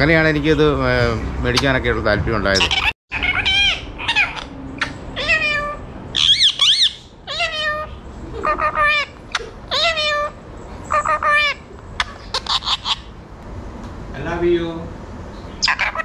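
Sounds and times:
parakeet calling: 2.5 - 13.3, 15.4 - 16.0.

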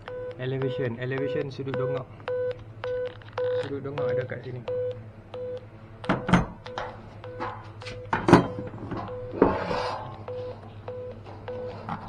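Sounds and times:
phone app beeping: 0.1 - 5.6.

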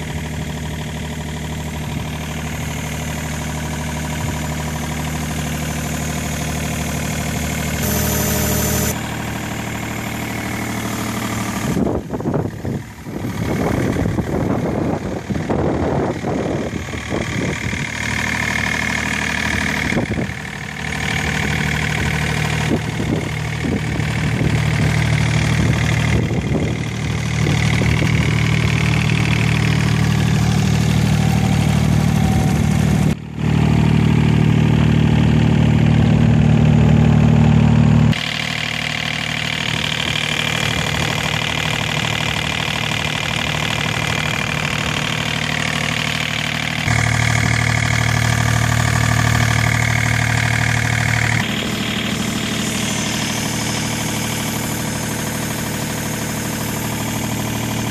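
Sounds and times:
diesel engine idling: 0.0 - 57.9.

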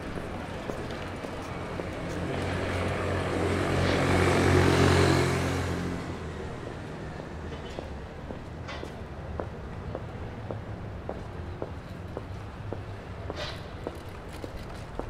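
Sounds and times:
motor vehicle passing by: 1.4 - 7.4.

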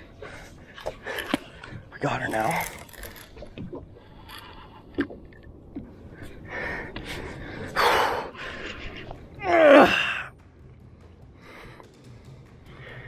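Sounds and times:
man breathing hard: 6.2 - 8.9, 11.3 - 13.0.

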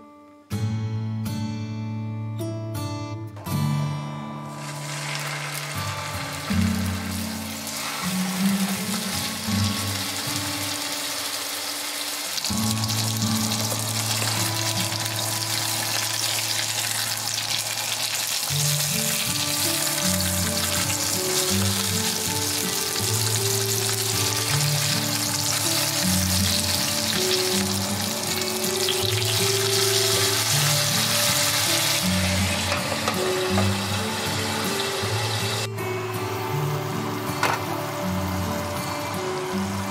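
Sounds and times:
soft background music: 0.0 - 39.9
patties sizzling in a frying pan: 4.5 - 35.7.

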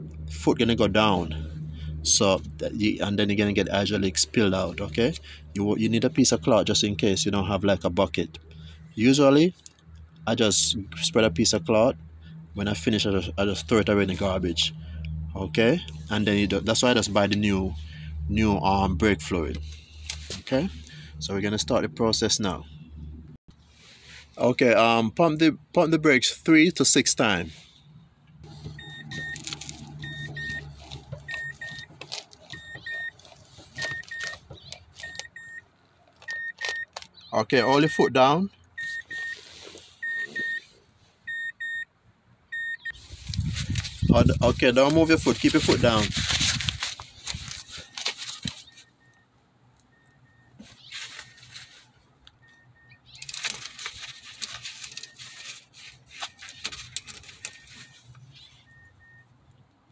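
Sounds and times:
car warning chime double-beeping: 28.6 - 31.9, 32.5 - 33.2, 33.8 - 35.6, 36.3 - 36.9, 37.5 - 39.4, 40.0 - 40.7, 41.3 - 41.9, 42.5 - 43.0, 48.6 - 49.3, 49.9 - 50.6, 52.4 - 53.1, 57.4 - 59.3.

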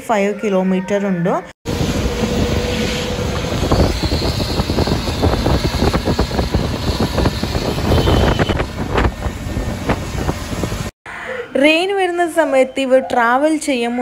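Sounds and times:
wind buffeting microphone: 1.7 - 10.9.

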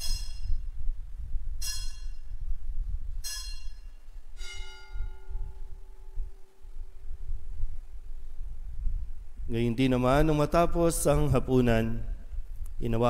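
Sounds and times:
altar bells ringing: 3.2 - 6.2.

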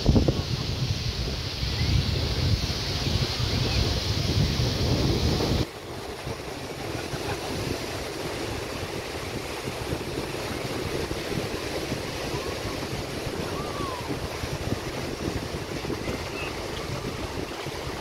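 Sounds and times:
small waves on sandy beach: 0.0 - 18.0
wind on microphone: 0.0 - 18.0.

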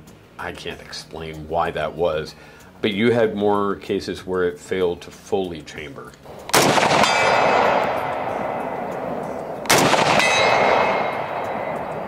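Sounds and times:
rifle shots with metallic ringing: 6.4 - 12.0.

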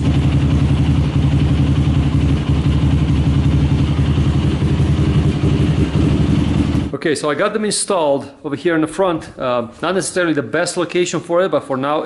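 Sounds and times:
quad engine idling: 0.0 - 6.9.

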